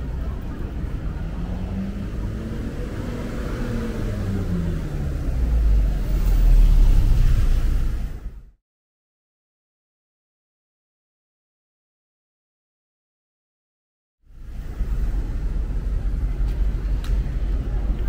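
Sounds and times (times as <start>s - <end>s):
deep rumble: 0.0s - 8.6s, 14.3s - 18.0s
vehicle engine passing: 0.1s - 8.5s.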